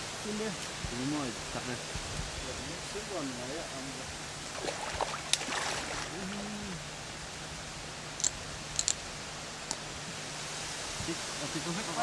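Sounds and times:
water sloshing and splashing: 0:04.5 - 0:06.4
person murmuring: 0:06.1 - 0:06.9.

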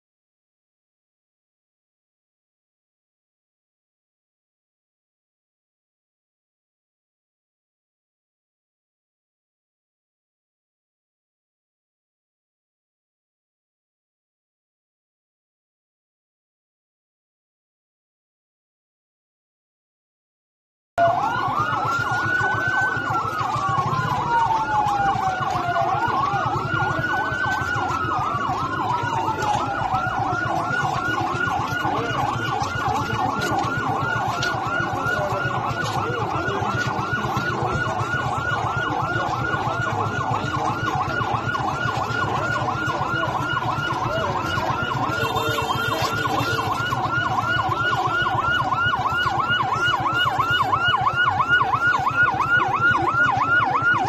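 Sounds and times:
ambulance siren: 0:21.0 - 0:54.0
crowd hubbub: 0:21.0 - 0:54.0.

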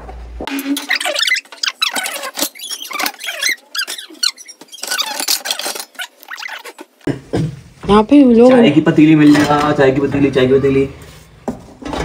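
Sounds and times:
metal pots scraping and knocking: 0:00.4 - 0:06.9
metal squeaking on metal: 0:00.5 - 0:06.9.

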